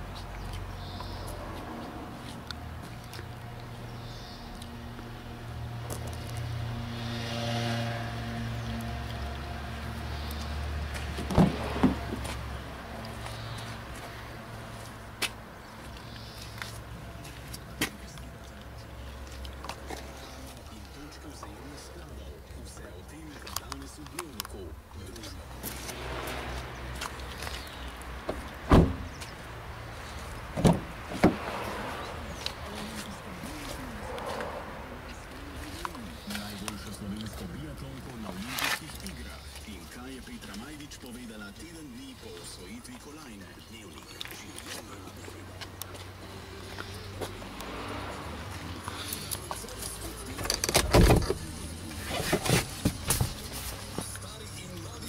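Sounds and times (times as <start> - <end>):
car door latch clacks: 28.3 - 29.1, 30.6 - 31.4.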